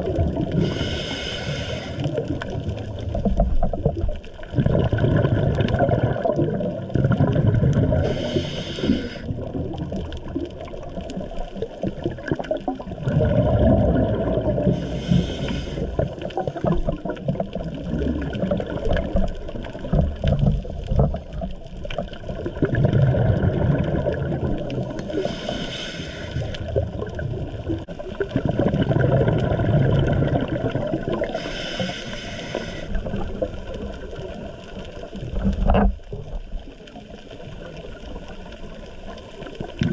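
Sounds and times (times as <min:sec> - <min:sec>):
exhaled air bubbling: 0:00.0 - 0:39.9
regulator hissing inhalations: 0:00.6 - 0:02.1, 0:08.0 - 0:09.3, 0:14.7 - 0:16.0, 0:25.1 - 0:26.7, 0:31.2 - 0:33.1.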